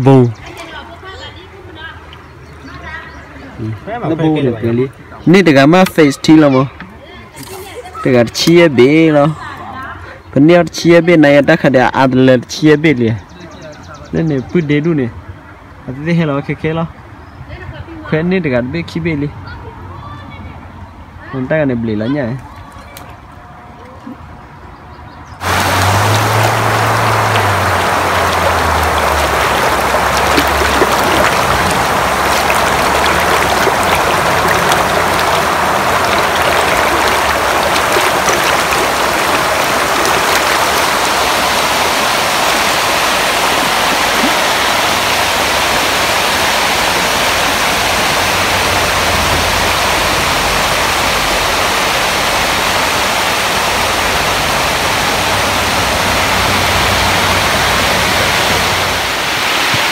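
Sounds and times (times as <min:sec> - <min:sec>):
water rushing over spillway: 0:25.4 - 0:59.9.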